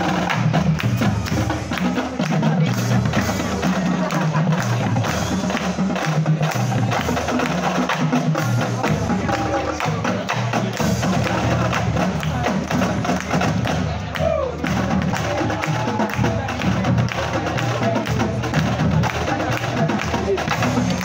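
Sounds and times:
snare drums: 0.0 - 21.0
tenor drums: 0.0 - 21.0.

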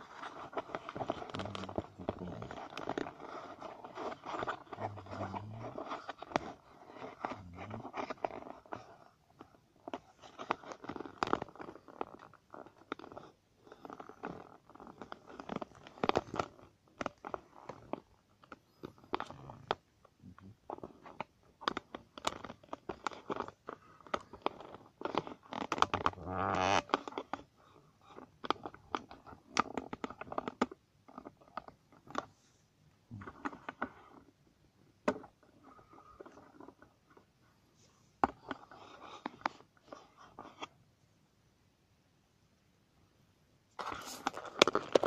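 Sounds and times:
kitten playing on carpet: 43.8 - 45.0.

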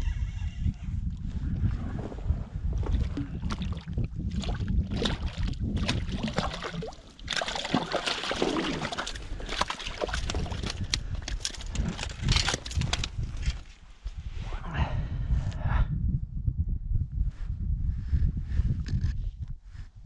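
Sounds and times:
water sloshing: 2.8 - 12.8
fish splashing in water: 4.4 - 10.8
low rumble: 8.4 - 19.9.

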